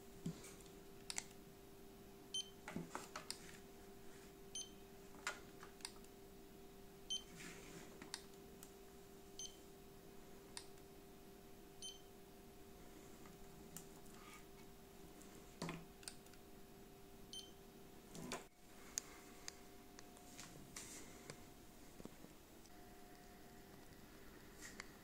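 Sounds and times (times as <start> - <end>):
thermometer beeping: 2.3 - 2.6, 4.6 - 4.8, 7.1 - 7.3, 9.4 - 9.6, 11.8 - 12.1, 17.3 - 17.6.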